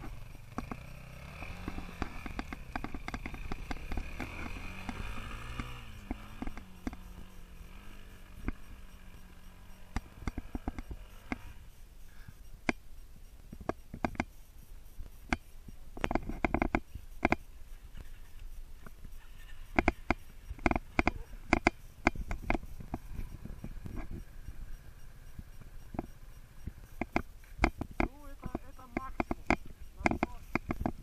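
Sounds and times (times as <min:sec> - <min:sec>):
dirt bike engine idling: 0:00.0 - 0:31.0.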